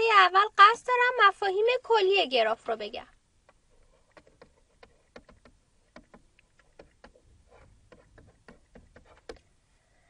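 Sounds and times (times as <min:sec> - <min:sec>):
stylus tapping on tablet: 0:02.6 - 0:09.5.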